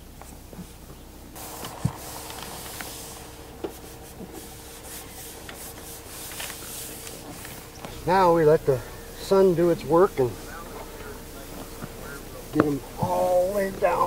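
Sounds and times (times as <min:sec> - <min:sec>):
faint steady hum: 0:00.0 - 0:14.0
hands rubbing a panel: 0:01.4 - 0:08.6.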